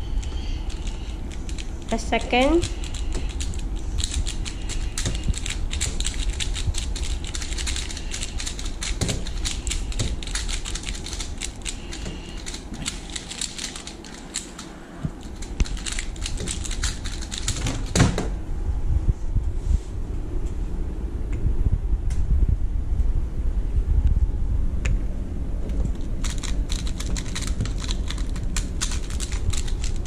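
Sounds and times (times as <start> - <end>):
puzzle cubes clicking: 0.2 - 18.1, 25.9 - 30.0.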